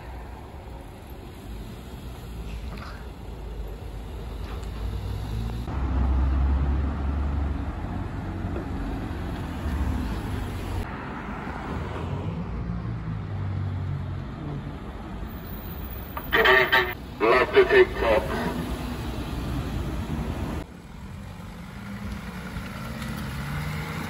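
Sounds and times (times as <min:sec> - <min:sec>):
cars driving past: 0:00.0 - 0:24.0.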